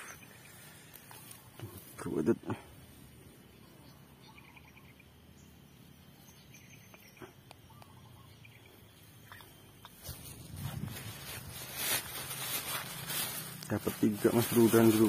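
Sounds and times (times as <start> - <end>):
faint chirps: 0.0 - 10.4.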